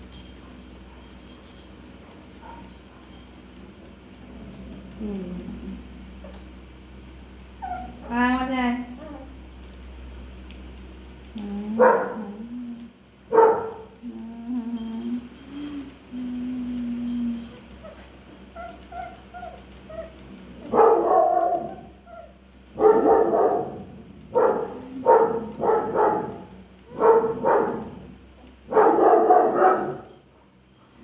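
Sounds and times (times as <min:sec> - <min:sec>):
puppy barking: 0:02.4 - 0:03.1, 0:11.8 - 0:12.3, 0:13.3 - 0:13.8, 0:18.6 - 0:28.0, 0:28.7 - 0:30.2
puppy whining: 0:07.6 - 0:08.3, 0:08.9 - 0:09.4, 0:14.4 - 0:22.4.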